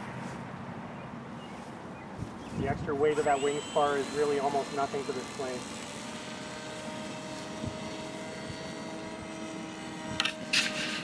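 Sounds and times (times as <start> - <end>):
model plane motor whining: 2.6 - 11.0.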